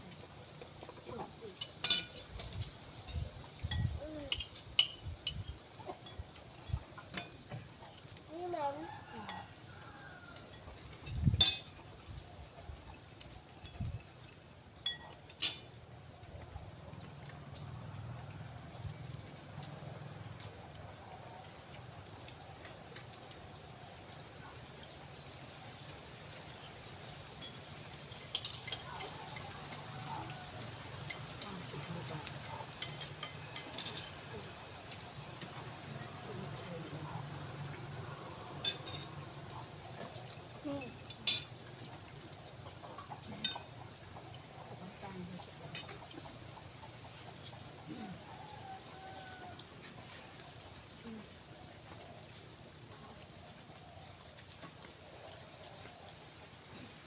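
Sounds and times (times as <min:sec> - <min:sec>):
spoons clinking on china plates: 0:01.6 - 0:02.5, 0:03.1 - 0:06.3, 0:10.5 - 0:11.8, 0:14.8 - 0:15.7, 0:27.4 - 0:34.3, 0:38.6 - 0:39.2, 0:40.9 - 0:41.6, 0:43.4 - 0:43.8.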